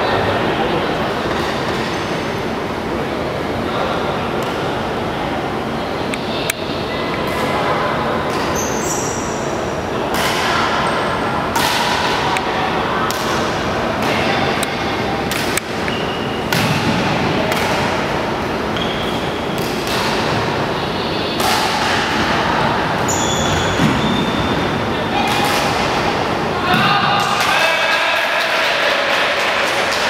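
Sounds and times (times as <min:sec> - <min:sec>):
echoing hall noise: 0:00.0 - 0:30.0
rackets hitting shuttlecock: 0:11.5 - 0:12.4, 0:15.2 - 0:18.1, 0:18.8 - 0:20.5, 0:21.4 - 0:22.4, 0:23.4 - 0:27.6.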